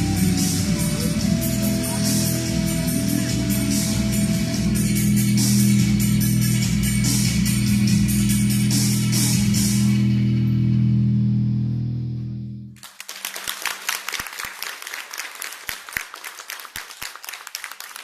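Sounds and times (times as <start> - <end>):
guitar-led dance music: 0.0 - 9.8
audience applause: 12.8 - 18.0.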